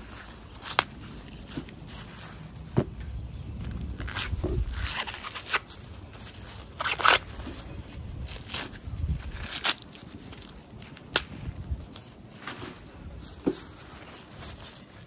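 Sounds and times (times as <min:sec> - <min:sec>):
corn husks tearing and rustling: 0:00.0 - 0:15.0
husk snapping: 0:06.7 - 0:07.6, 0:08.2 - 0:12.0.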